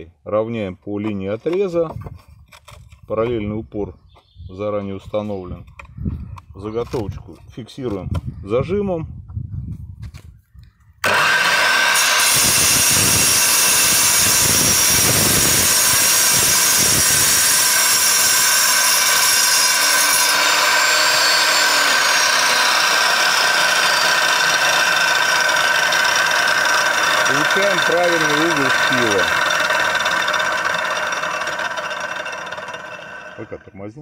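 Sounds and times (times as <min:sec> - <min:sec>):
angle grinder cutting brick: 0:11.0 - 0:33.7.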